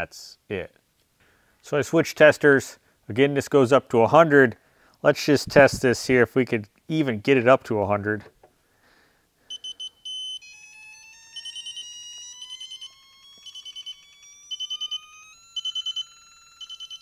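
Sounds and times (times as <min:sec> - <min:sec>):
rapid high beeps: 0:09.5 - 0:17.0.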